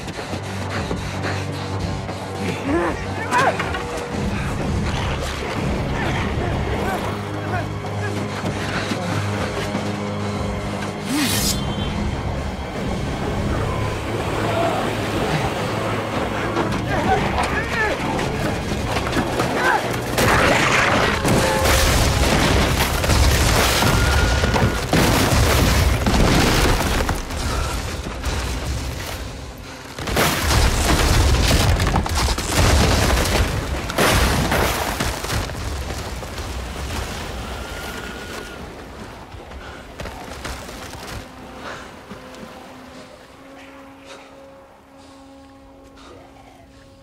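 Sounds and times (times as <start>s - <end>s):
ice cracking and breaking: 18.2s - 29.2s, 29.9s - 37.4s.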